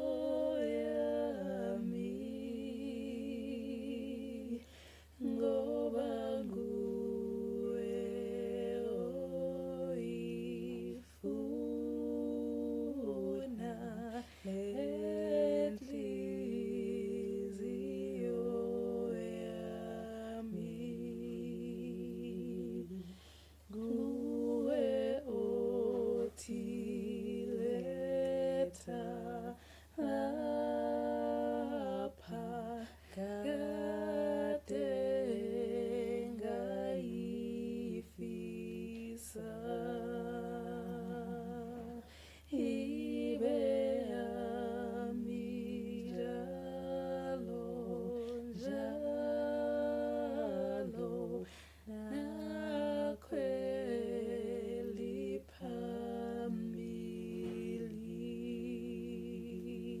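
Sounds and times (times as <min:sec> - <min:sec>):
woman singing a cappella: 0:00.0 - 1:00.0
singer breathing: 0:04.6 - 0:05.2, 0:23.1 - 0:23.7, 0:29.6 - 0:29.9, 0:42.0 - 0:42.5, 0:51.5 - 0:51.9.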